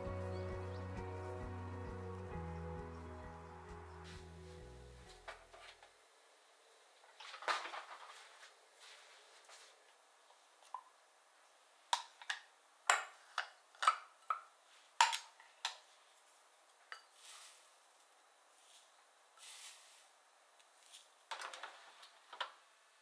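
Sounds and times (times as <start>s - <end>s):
soft rustle of dried flakes: 3.9s - 5.8s, 7.2s - 10.5s, 15.8s - 22.3s.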